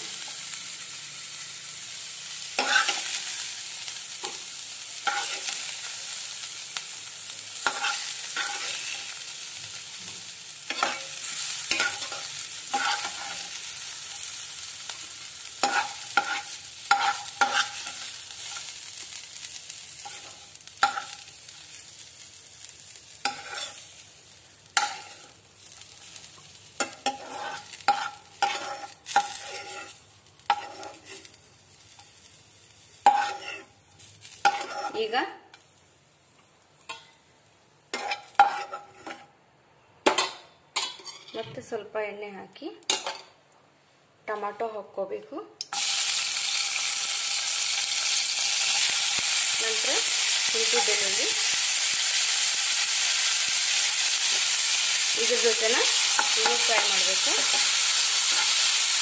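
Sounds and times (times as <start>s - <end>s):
onions sizzling in hot oil: 0.0s - 39.2s, 45.6s - 59.0s
spoon scraping and knocking pan: 5.0s - 5.7s, 7.6s - 9.0s, 10.7s - 13.5s, 15.6s - 18.7s, 23.2s - 23.8s, 24.8s - 25.3s, 26.8s - 31.2s, 33.0s - 33.7s, 34.4s - 35.0s, 37.9s - 39.3s, 55.9s - 57.7s.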